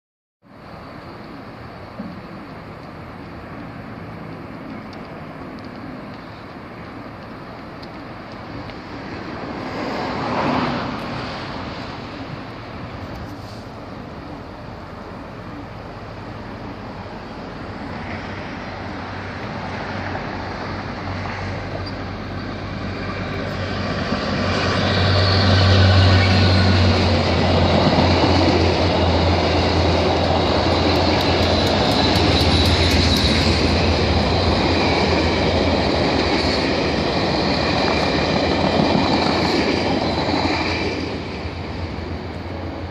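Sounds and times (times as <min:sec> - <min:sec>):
diesel locomotive engine drone: 0:00.4 - 0:42.9
passenger cars rumbling by: 0:00.6 - 0:42.9
high wheel squeal: 0:21.7 - 0:40.3.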